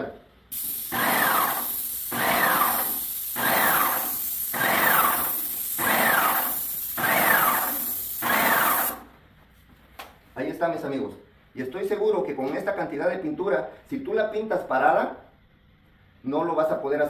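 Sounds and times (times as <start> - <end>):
high hiss of paint spray: 0.5 - 9.1
paint sprayer pump pulsing whine: 0.6 - 9.0.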